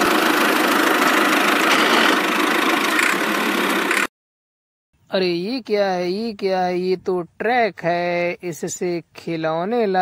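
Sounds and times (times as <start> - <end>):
truck engine idling: 0.0 - 4.1.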